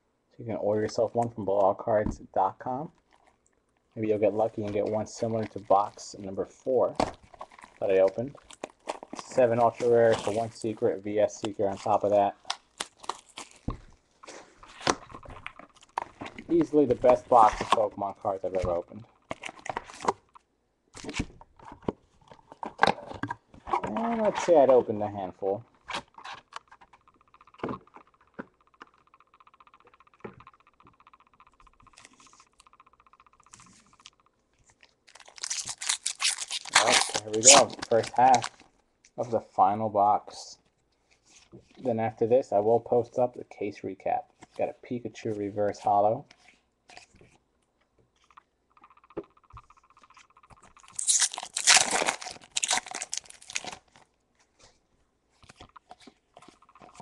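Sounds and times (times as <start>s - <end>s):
foil wrappers crinkling: 7.2s - 10.8s, 11.8s - 20.2s, 34.6s - 38.6s, 50.7s - 54.1s
foil wrapper tearing and crinkling: 11.8s - 13.7s, 34.8s - 38.6s, 50.9s - 54.0s
packs tapping together: 48.8s - 53.8s.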